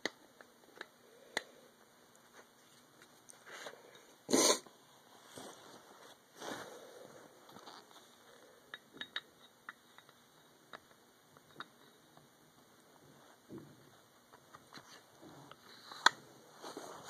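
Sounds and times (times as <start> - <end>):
handling rustle: 16.5 - 17.0.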